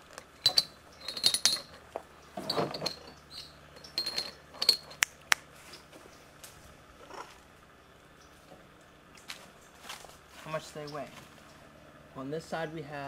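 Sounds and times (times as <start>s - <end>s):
weights clinking into basket: 0.4s - 5.0s.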